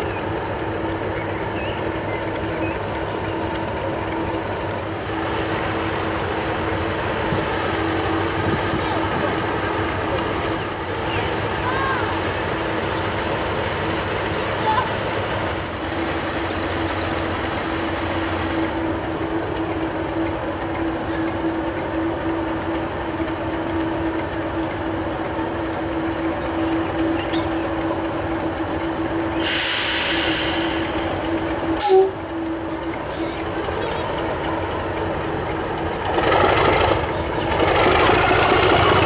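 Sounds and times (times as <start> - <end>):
diesel locomotive idling: 0.0 - 39.0.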